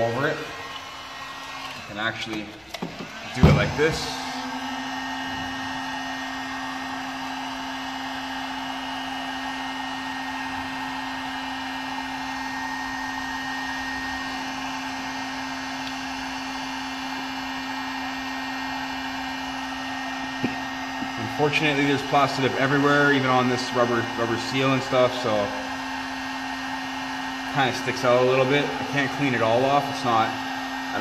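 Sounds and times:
heat gun running: 0.0s - 31.0s.

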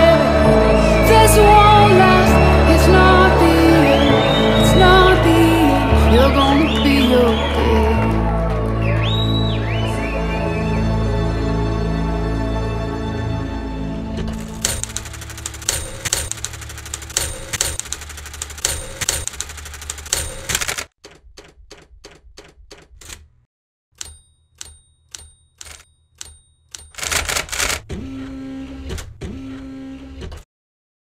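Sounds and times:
typewriter carriage sliding: 14.3s - 20.9s, 26.9s - 27.9s
typewriter bell ringing: 14.4s - 20.8s, 24.0s - 27.8s
typewriter keystrokes: 14.4s - 23.4s, 24.0s - 27.9s.

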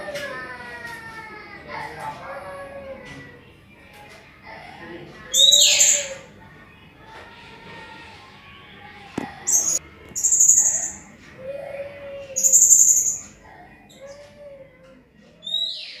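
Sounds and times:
parrot shrill high calls: 5.3s - 6.2s, 9.5s - 11.0s, 12.4s - 13.3s, 15.4s - 16.0s.

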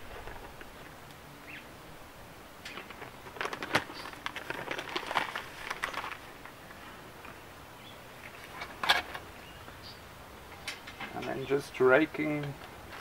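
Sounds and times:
plastic bag crinkling: 2.7s - 6.6s.

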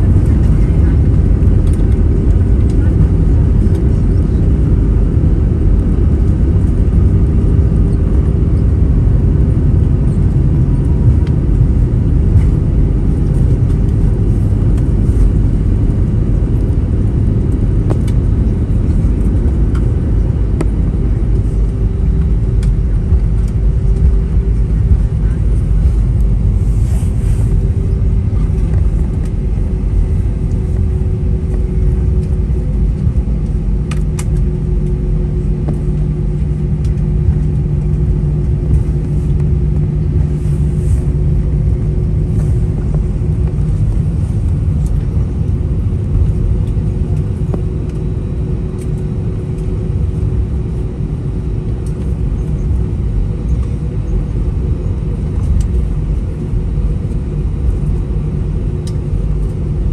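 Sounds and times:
airliner cabin rumble: 0.0s - 59.9s
jet engine hum: 0.0s - 59.9s.

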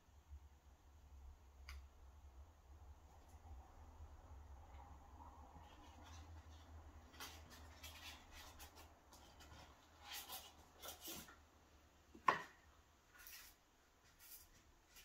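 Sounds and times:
foam rubbing and scraping in box: 7.0s - 11.3s.

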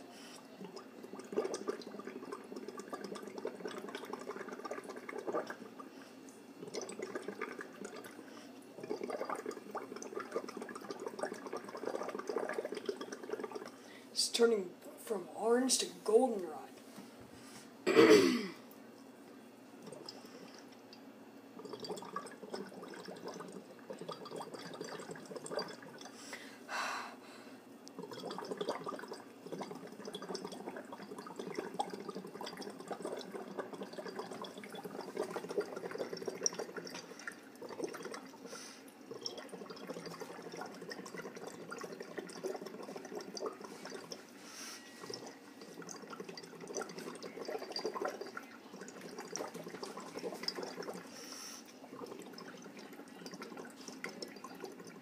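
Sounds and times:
bubbling through a straw: 0.0s - 14.0s, 19.4s - 26.2s, 27.9s - 55.0s
short breath: 26.2s - 27.6s, 44.4s - 45.0s, 51.1s - 51.7s.

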